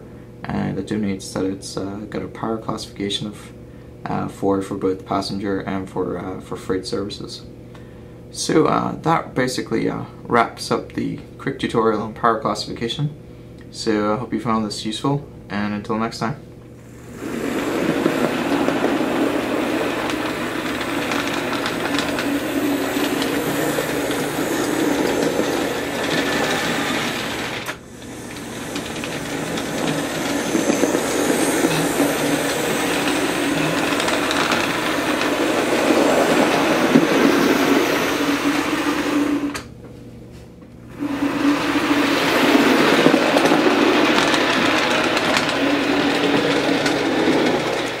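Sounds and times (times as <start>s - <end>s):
whirring electric motor: 16.9s - 39.7s, 40.9s - 48.0s
model train wheel clatter: 17.1s - 39.6s, 41.0s - 48.0s.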